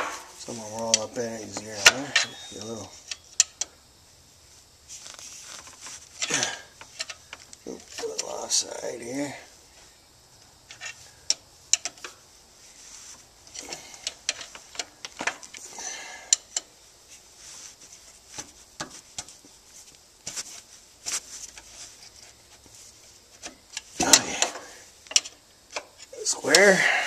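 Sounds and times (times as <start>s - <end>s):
metallic clicks and scrapes: 13.5s - 15.6s.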